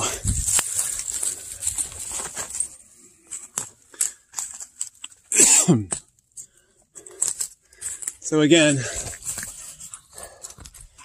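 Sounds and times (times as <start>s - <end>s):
footsteps on dry leaves and rock: 0.0s - 2.9s.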